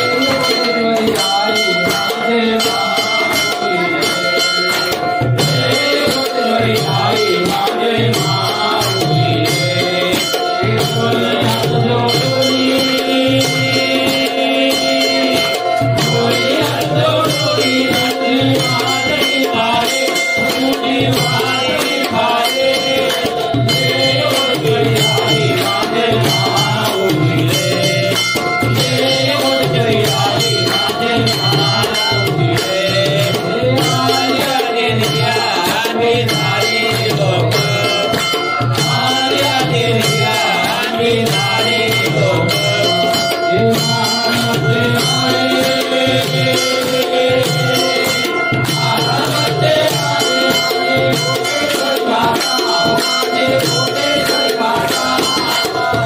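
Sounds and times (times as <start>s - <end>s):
drums beating steady rhythm: 0.0s - 56.0s
rattling percussion: 0.0s - 56.0s.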